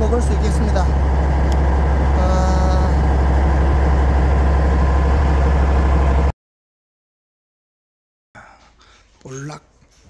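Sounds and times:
boat engine droning: 0.0s - 6.3s.

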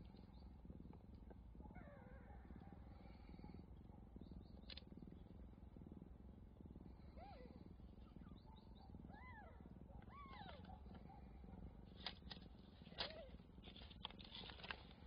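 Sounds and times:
cat purring: 0.0s - 15.0s
sharp crackles: 11.9s - 15.0s.

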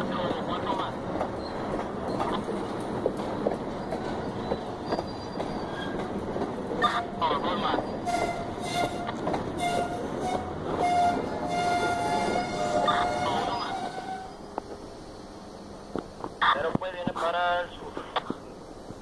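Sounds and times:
freight train wheels rumbling: 0.0s - 19.0s
wheels squealing: 1.4s - 14.5s.

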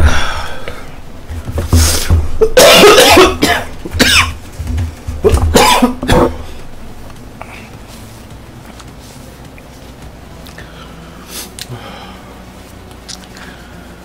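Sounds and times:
man coughing hard: 2.4s - 4.4s, 5.3s - 6.5s.

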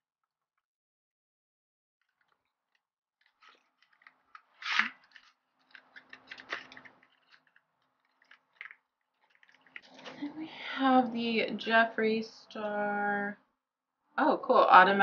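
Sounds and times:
small clicks and rustles: 2.0s - 10.4s.

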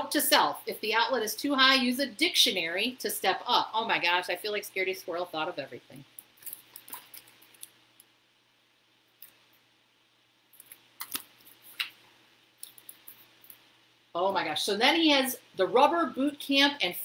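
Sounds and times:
book pages rustling: 6.4s - 7.7s, 10.6s - 12.0s.

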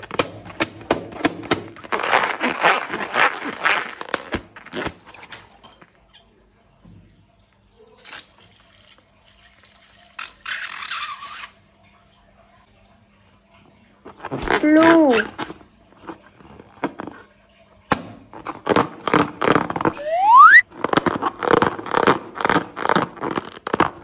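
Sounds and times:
slime squelching and crackling: 0.0s - 5.6s, 18.3s - 24.0s.

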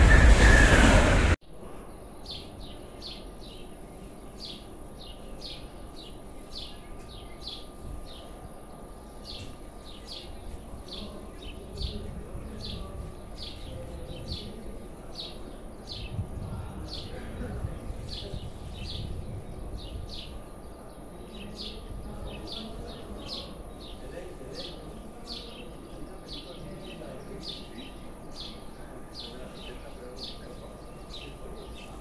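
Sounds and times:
train rushing past: 0.0s - 1.4s.

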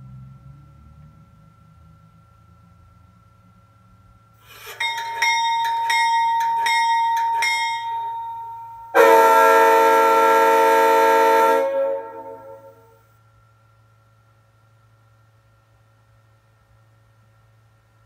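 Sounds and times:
locomotive bell ringing: 4.0s - 13.0s
diesel horn blast: 8.9s - 13.0s.

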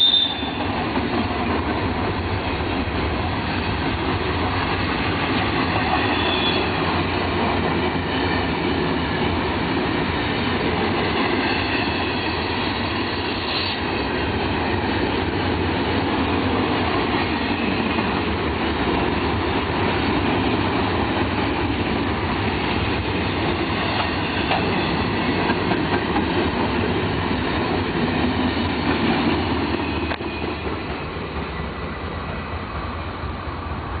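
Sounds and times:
high wheel squeal: 0.0s - 0.8s, 5.7s - 6.9s, 11.2s - 13.8s, 29.7s - 31.1s
train wheels rumbling on rail: 0.0s - 34.0s.

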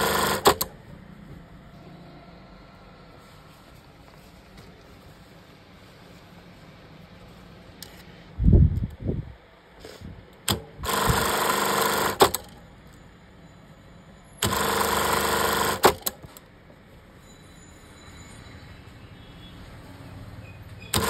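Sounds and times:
sewing machine running: 0.0s - 0.8s, 10.5s - 12.6s, 14.4s - 16.2s.

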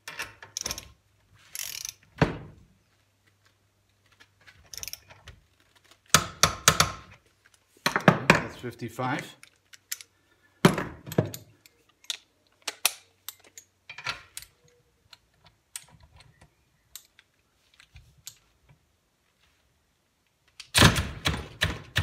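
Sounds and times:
tools clicking: 0.0s - 2.1s, 4.6s - 7.6s, 9.4s - 10.2s, 11.1s - 18.5s.

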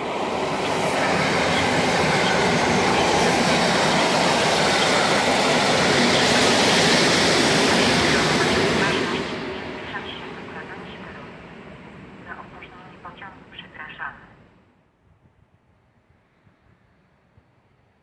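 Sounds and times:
train wheels rushing on rails: 0.0s - 12.1s.

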